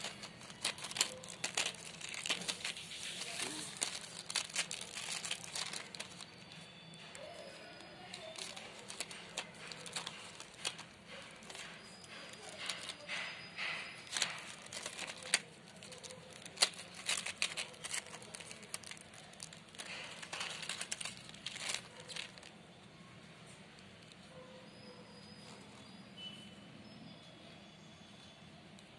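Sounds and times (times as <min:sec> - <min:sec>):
plastic clicks: 0:00.0 - 0:22.5
packaging rustling: 0:00.0 - 0:22.6.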